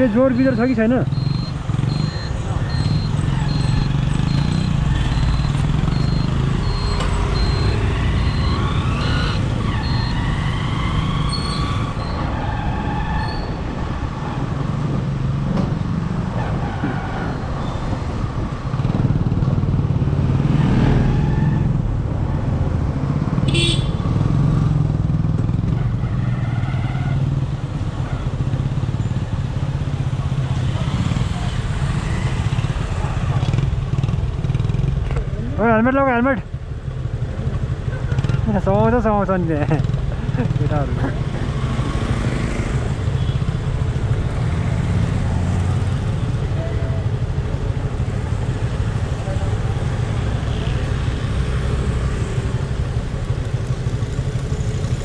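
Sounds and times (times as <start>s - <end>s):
short high beeps: 1.1s - 10.2s.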